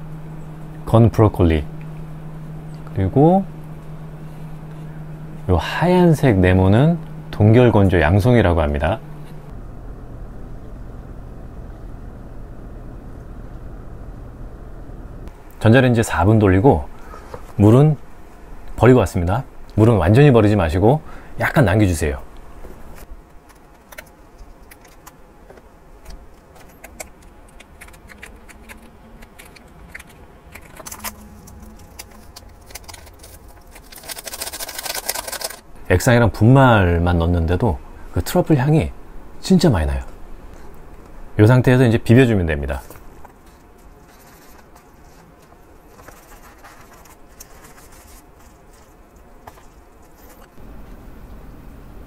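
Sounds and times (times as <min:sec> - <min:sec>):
foil sachets crinkling: 0:30.6 - 0:35.6
powder pouring into paper cup: 0:32.0 - 0:35.6.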